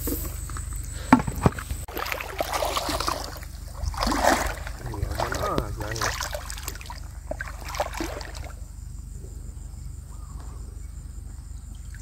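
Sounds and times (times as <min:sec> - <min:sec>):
faint water sounds: 0:00.0 - 0:12.0
low steady hum: 0:00.0 - 0:12.0
wading steps splashing in water: 0:01.8 - 0:08.7.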